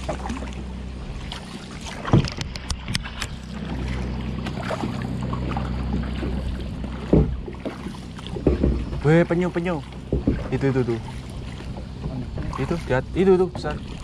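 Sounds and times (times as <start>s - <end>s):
paddle splashing water: 0.0s - 14.0s
sharp knocks on kayak: 1.9s - 3.8s, 5.5s - 14.0s.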